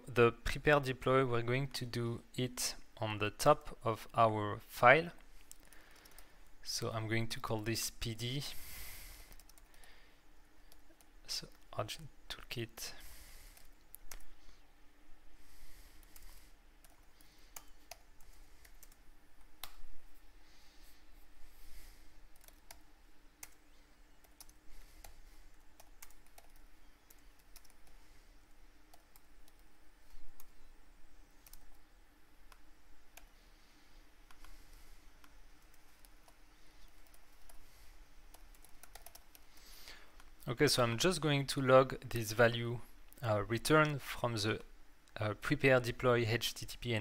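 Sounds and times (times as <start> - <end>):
faint steady hum: 0.0 - 47.0
typing on computer keyboard: 38.3 - 39.4.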